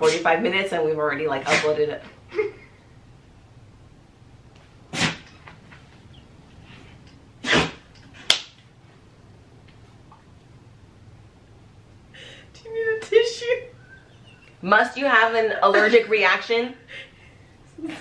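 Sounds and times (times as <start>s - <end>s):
woman sneezing: 1.5s - 1.8s.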